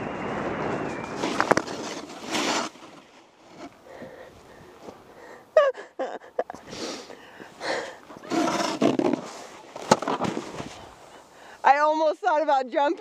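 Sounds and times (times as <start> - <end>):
clothing and board scraping snow: 0.0 - 3.9, 6.7 - 11.8.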